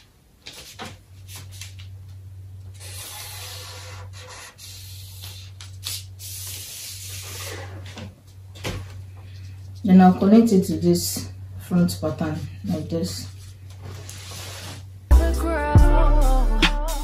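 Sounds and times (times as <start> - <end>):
steady low hum: 0.0 - 17.0
marker scratching on paper: 2.8 - 5.5.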